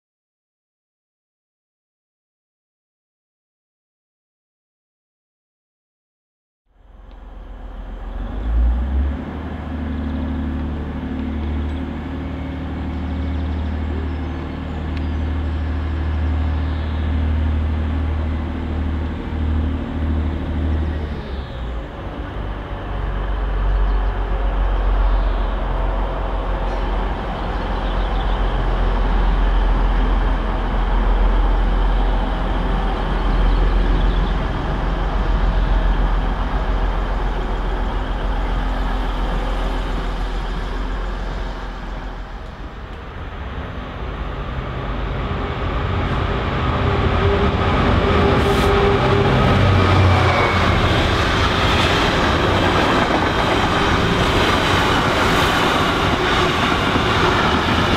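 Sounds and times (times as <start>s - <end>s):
train diesel engines: 6.7s - 57.9s.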